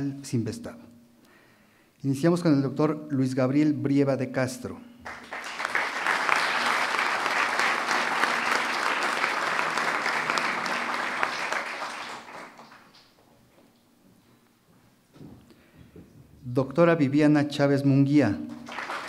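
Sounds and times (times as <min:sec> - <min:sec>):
crowd applause: 0:05.1 - 0:13.0, 0:18.6 - 0:19.0.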